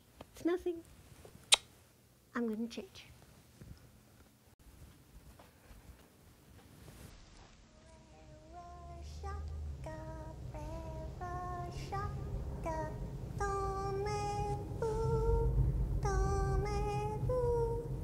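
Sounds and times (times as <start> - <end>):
low steady rumble: 7.6 - 18.0
high voice singing slow melody: 7.7 - 18.0.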